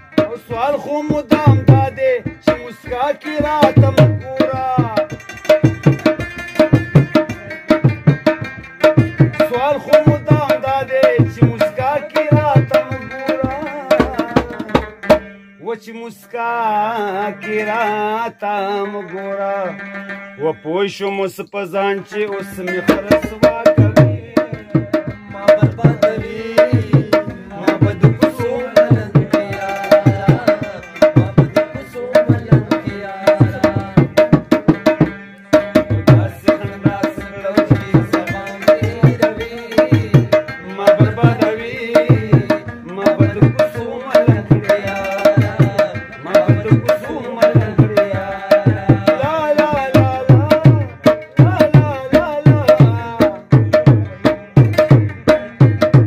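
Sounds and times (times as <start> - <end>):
tabla playing a steady beat: 0.0 - 15.7, 22.1 - 56.0.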